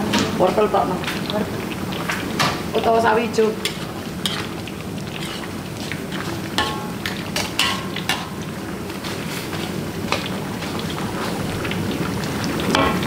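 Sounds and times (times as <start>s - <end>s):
cooking hiss: 0.0s - 13.0s
utensil scraping a pot: 3.7s - 8.3s.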